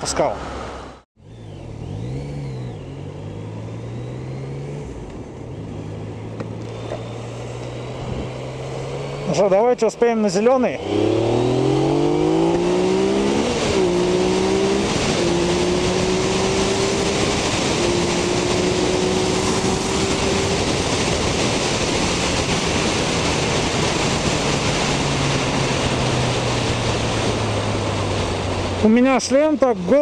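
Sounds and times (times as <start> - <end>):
motorcycle engine accelerating: 0.4 - 30.0
wind rush: 7.9 - 9.1, 10.5 - 28.9.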